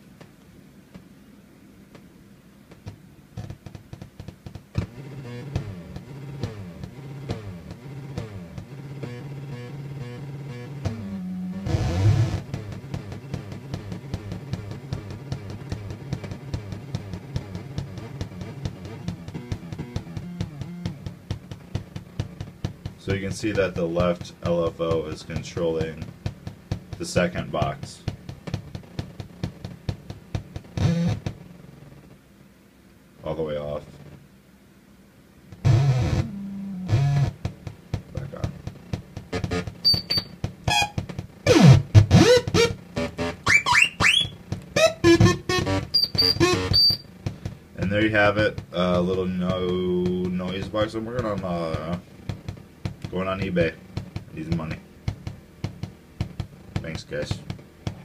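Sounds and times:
low buzzing synthesizer tones: 2.7s - 32.2s, 35.4s - 58.0s
electronic bleeps and pulses: 17.4s - 21.1s, 30.8s - 31.2s, 35.6s - 37.3s, 39.3s - 47.1s
rising electronic chirps: 39.5s - 47.0s.

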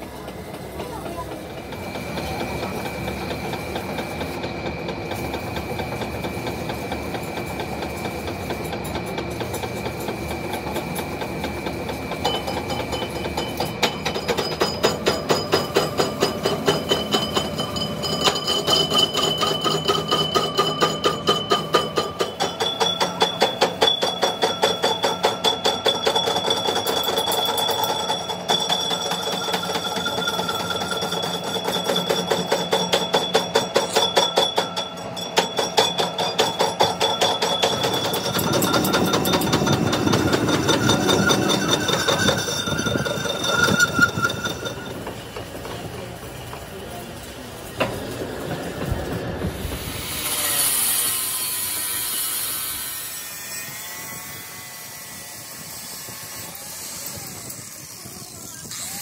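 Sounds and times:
lathe cutting metal with whine: 1.5s - 46.5s, 49.6s - 59.0s.

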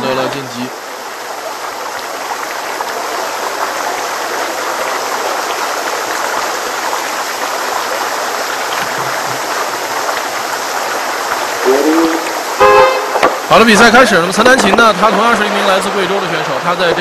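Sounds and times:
whitewater rushing: 0.8s - 17.0s.

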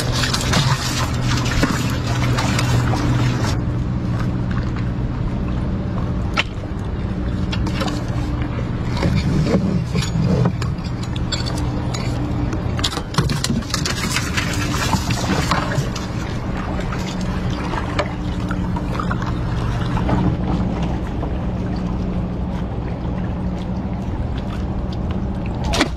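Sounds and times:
fish splashing: 0.0s - 3.6s, 13.0s - 25.9s
boat motor humming: 0.0s - 25.9s.

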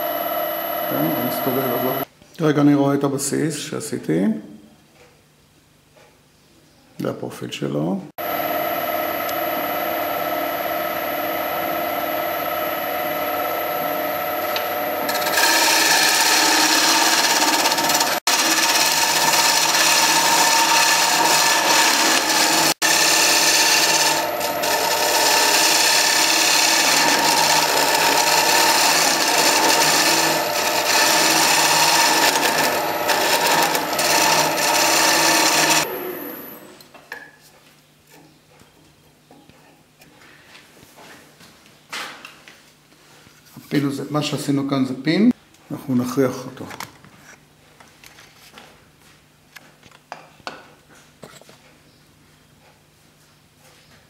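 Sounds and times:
wood lathe motor whine: 0.0s - 2.1s, 8.2s - 36.8s
turning tool scraping wood: 12.4s - 35.9s.

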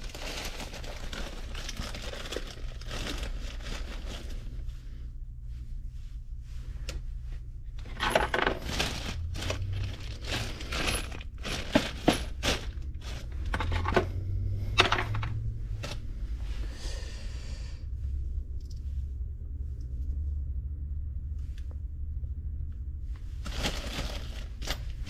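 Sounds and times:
plastic bag rustle: 0.0s - 4.8s, 7.9s - 13.7s, 23.4s - 25.0s
low hum: 0.0s - 25.0s.

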